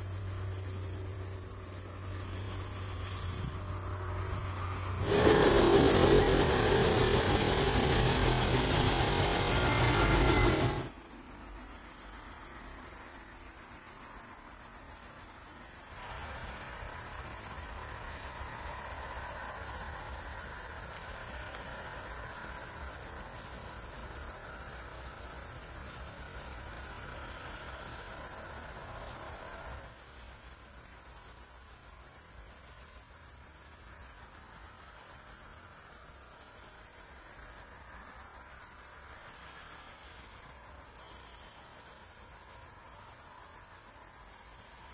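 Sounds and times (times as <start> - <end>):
insect trilling: 0.0 - 11.2.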